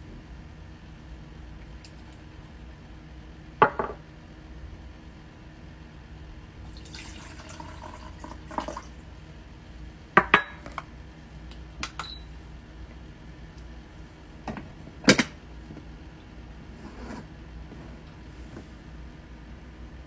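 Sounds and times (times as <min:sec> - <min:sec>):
water trickling into tank: 0:06.7 - 0:09.1.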